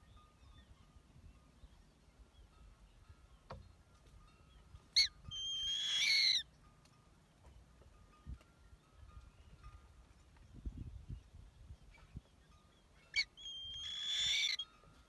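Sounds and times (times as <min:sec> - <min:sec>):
bird chick calling: 0:05.0 - 0:06.5, 0:13.1 - 0:14.7.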